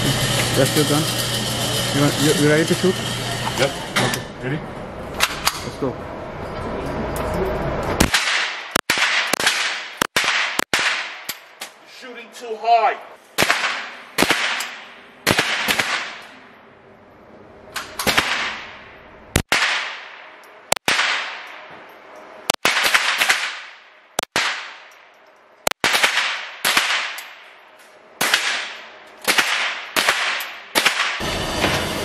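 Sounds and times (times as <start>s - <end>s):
rifle shots echoing indoors: 8.0s - 11.3s, 13.4s - 16.4s, 18.0s - 21.7s, 22.5s - 25.0s, 25.7s - 27.5s, 28.2s - 31.2s.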